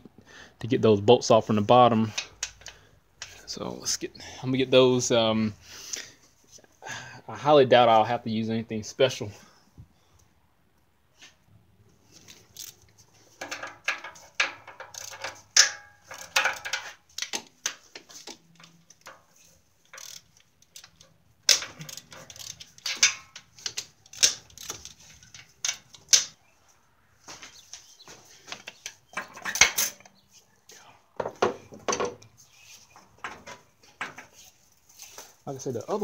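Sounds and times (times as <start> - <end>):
metal tools knocking and clinking: 13.4 - 17.8, 18.6 - 26.4, 28.5 - 30.2.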